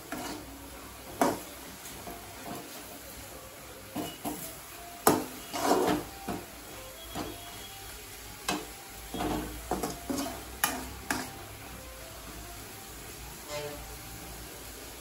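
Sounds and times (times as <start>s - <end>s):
metal ladle scraping a pan: 0.0s - 0.6s, 5.1s - 6.1s, 9.1s - 11.4s, 13.4s - 13.9s.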